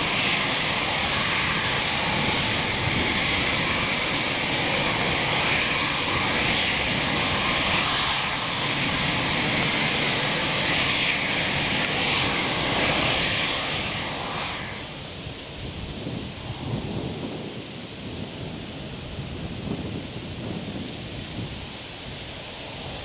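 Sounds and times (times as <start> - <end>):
thin high whine: 0.0 - 15.2
jet engines rushing: 0.0 - 23.0.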